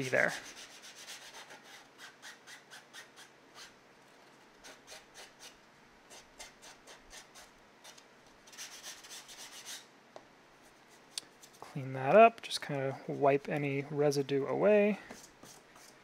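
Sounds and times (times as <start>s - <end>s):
sanding block rubbing plastic: 0.1s - 3.7s, 8.5s - 9.8s.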